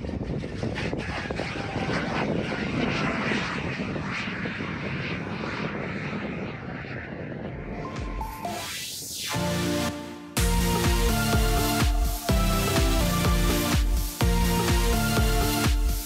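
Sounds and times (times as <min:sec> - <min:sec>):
airplane engines and propellers: 0:00.0 - 0:16.0.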